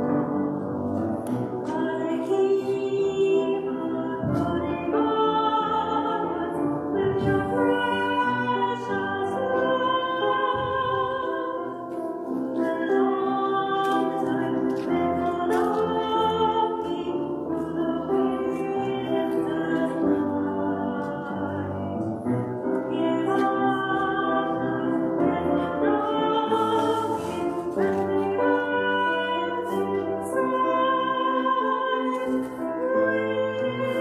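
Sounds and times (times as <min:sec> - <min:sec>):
music: 0:00.0 - 0:34.0
woman singing slow melody: 0:01.6 - 0:22.0, 0:22.6 - 0:34.0.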